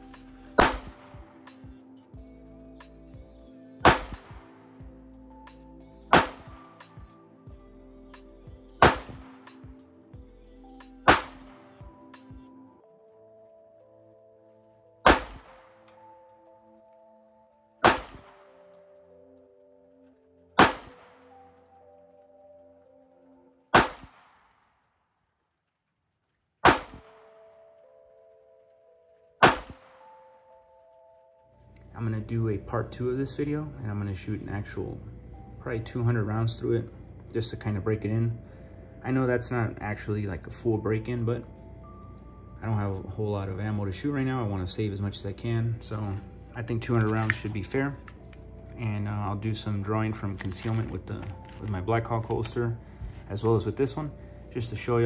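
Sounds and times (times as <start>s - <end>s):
background music: 0.0s - 24.8s, 26.3s - 55.0s
pistol shots: 0.6s - 1.2s, 3.8s - 4.5s, 6.1s - 6.6s, 8.8s - 9.4s, 11.1s - 11.7s, 15.0s - 15.8s, 17.8s - 18.6s, 20.6s - 21.3s, 23.7s - 24.6s, 26.6s - 27.3s, 29.4s - 30.0s.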